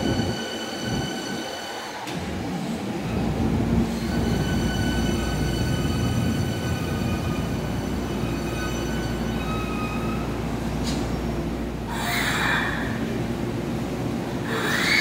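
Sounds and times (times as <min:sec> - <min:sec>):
train low rumble: 0:00.0 - 0:14.9.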